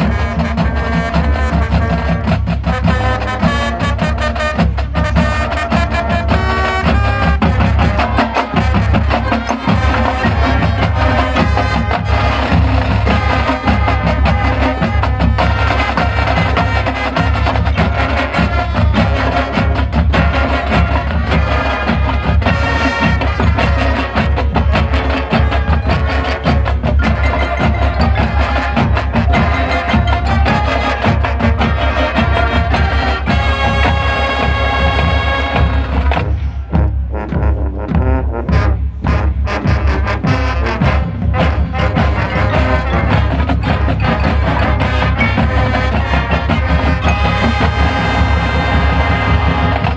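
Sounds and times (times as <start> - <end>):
brass band: 0.0 - 49.9
drumline: 0.0 - 49.9
marimbas and mallet percussion: 8.1 - 16.8, 22.6 - 33.4, 42.2 - 49.9.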